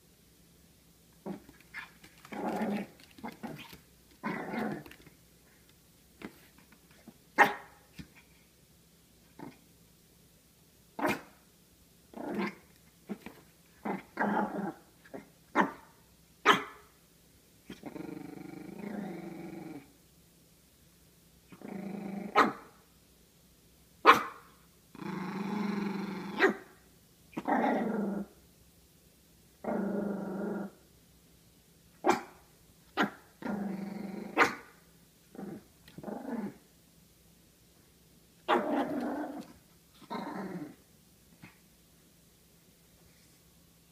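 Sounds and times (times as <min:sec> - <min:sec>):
small dog growling: 0:01.2 - 0:05.1, 0:09.4 - 0:09.7, 0:12.1 - 0:15.8, 0:17.7 - 0:20.0, 0:21.5 - 0:22.5, 0:24.9 - 0:26.6, 0:27.3 - 0:28.3, 0:29.6 - 0:30.8, 0:33.0 - 0:34.7, 0:35.3 - 0:36.6, 0:38.5 - 0:40.8
dog barking sharply: 0:07.4 - 0:07.7, 0:16.4 - 0:16.8, 0:24.1 - 0:24.4.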